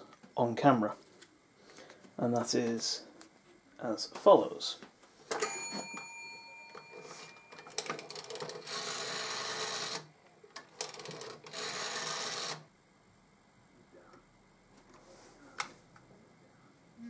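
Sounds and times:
rotary telephone dial clicking: 0:06.8 - 0:10.0, 0:10.6 - 0:12.6
rotary dial whirring back: 0:06.8 - 0:10.1, 0:10.8 - 0:12.7.

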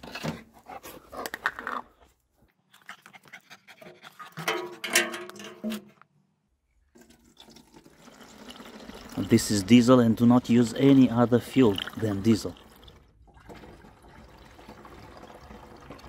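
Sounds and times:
dog panting: 0:02.8 - 0:04.5.

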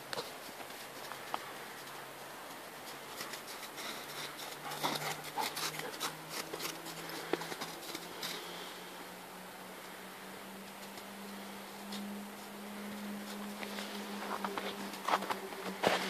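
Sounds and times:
footsteps crunching in snow: 0:00.2 - 0:08.7, 0:11.8 - 0:16.0.

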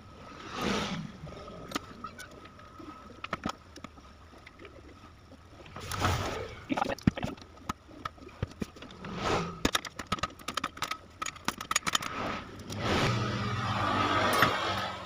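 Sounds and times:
metallic clicks and clinks: 0:09.7 - 0:12.8.

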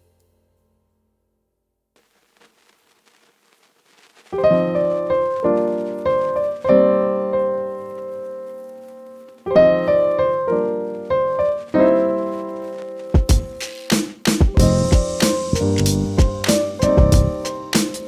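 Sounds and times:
piano chords: 0:04.4 - 0:18.0.

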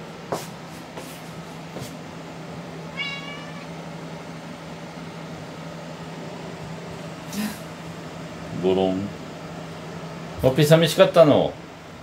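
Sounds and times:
steady low hum: 0:00.0 - 0:12.0
cat meowing: 0:02.9 - 0:03.8.

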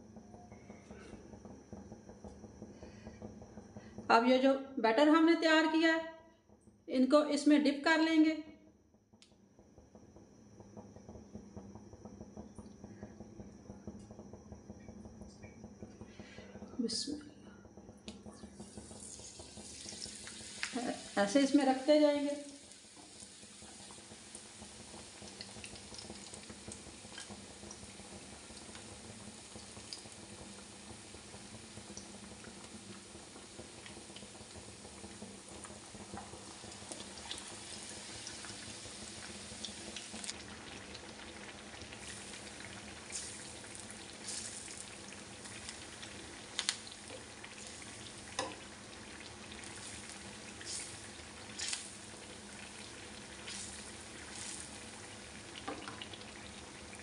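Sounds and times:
food deep-frying in hot oil: 0:15.9 - 0:57.0
oil crackling and spattering: 0:33.7 - 0:57.0.

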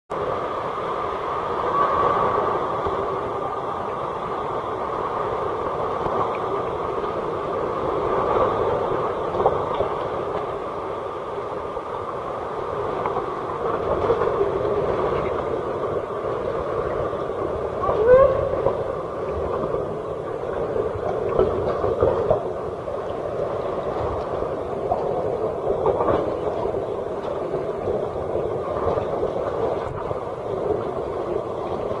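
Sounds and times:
water sloshing in a cave: 0:00.4 - 0:32.0.

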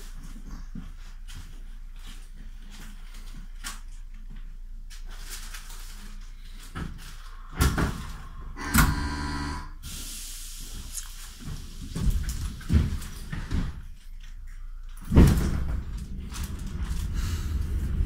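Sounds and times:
warning tone: 0:08.6 - 0:09.8
air hiss: 0:09.8 - 0:11.8.

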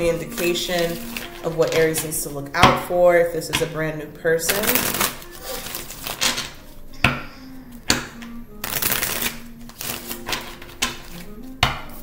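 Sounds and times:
cards shuffling and riffling: 0:00.3 - 0:01.8, 0:04.7 - 0:06.8, 0:08.2 - 0:11.4
cards snapping: 0:04.6 - 0:07.2, 0:07.8 - 0:12.0.

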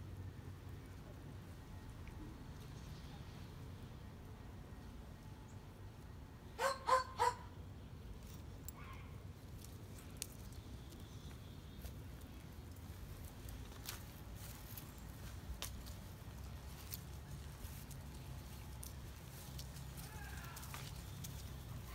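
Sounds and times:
dog barking high: 0:06.6 - 0:07.5
paws scampering on pavers: 0:09.5 - 0:21.9.

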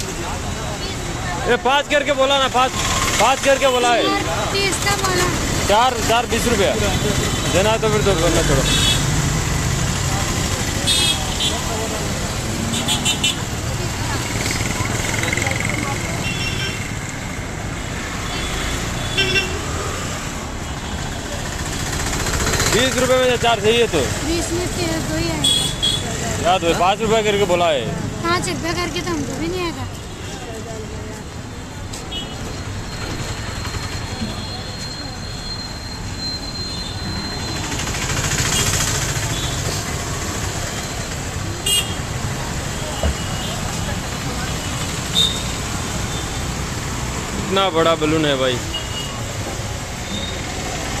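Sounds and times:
motor scooters passing: 0:00.0 - 0:30.8, 0:36.9 - 0:51.0
street traffic rumble: 0:00.0 - 0:51.0
auto-rickshaws running past: 0:21.1 - 0:25.1, 0:35.7 - 0:41.4.

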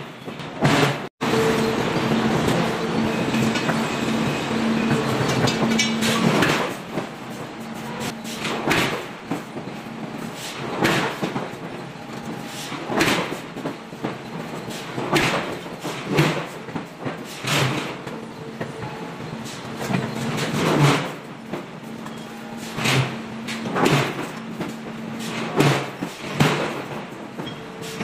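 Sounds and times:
machine hum: 0:01.2 - 0:08.0.

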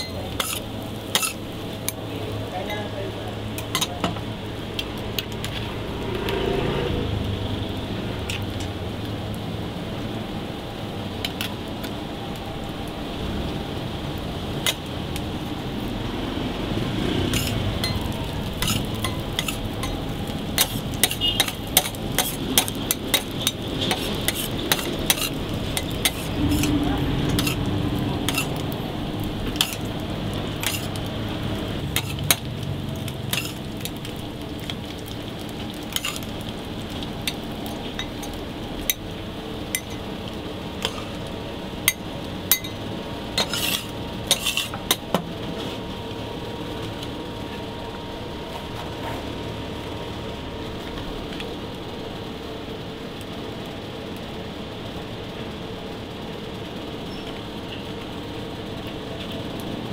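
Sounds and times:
food sizzling on a griddle: 0:00.0 - 0:59.9
metal spatula scraping steel plate: 0:00.3 - 0:01.4, 0:17.3 - 0:18.0, 0:18.6 - 0:19.6, 0:20.6 - 0:27.6, 0:28.3 - 0:28.7, 0:30.6 - 0:31.0, 0:33.3 - 0:33.6, 0:36.0 - 0:36.2, 0:43.4 - 0:44.8.

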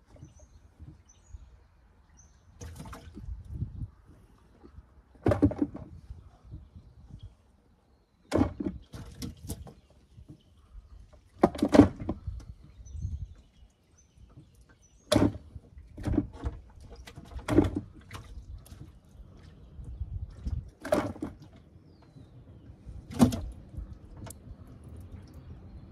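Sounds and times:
thuds in a boat's live well: 0:02.6 - 0:03.6, 0:05.2 - 0:06.7, 0:08.3 - 0:10.4, 0:11.2 - 0:12.8, 0:14.3 - 0:19.0, 0:20.3 - 0:21.6, 0:23.0 - 0:24.4.

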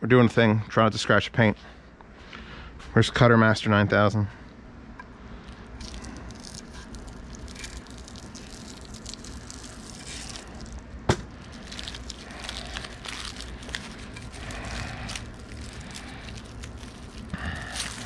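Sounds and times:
plastic wrap crinkling: 0:05.5 - 0:18.0.

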